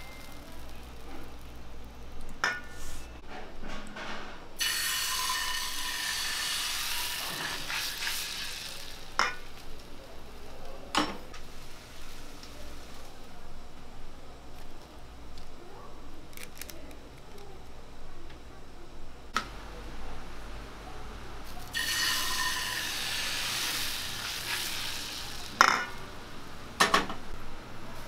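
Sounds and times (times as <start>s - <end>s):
batter sizzling in a frying pan: 4.6s - 10.5s, 11.3s - 13.2s, 21.7s - 26.0s.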